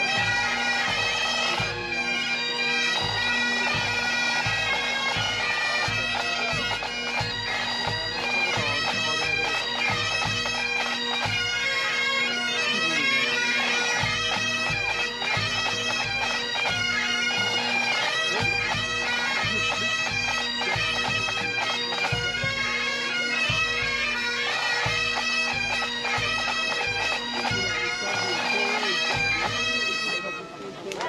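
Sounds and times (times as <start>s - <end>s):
bagpipes playing: 0.0s - 31.0s
drum beat: 3.8s - 11.4s.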